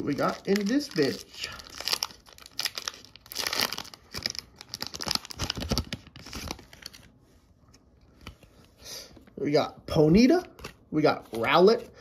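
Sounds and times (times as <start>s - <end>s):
foil wrapper tearing and crinkling: 0.0s - 7.0s
soft handling sounds: 5.9s - 12.0s.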